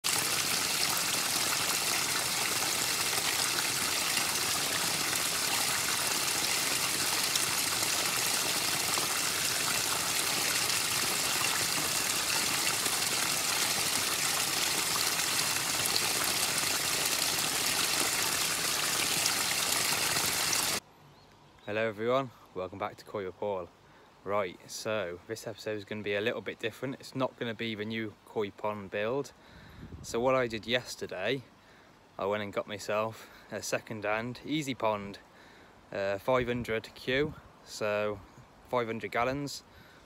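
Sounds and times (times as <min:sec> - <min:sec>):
water running over rock: 0:00.0 - 0:20.8.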